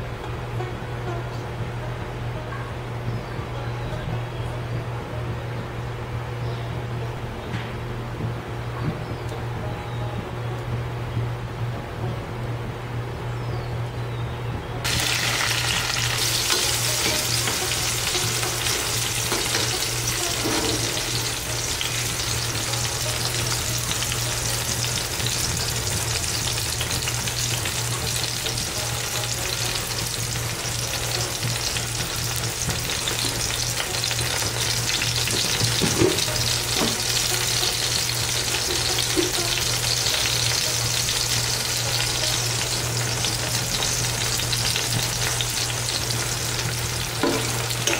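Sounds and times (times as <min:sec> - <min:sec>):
steady low hum: 0:00.0 - 0:47.9
food sizzling in frying pan: 0:14.8 - 0:47.9.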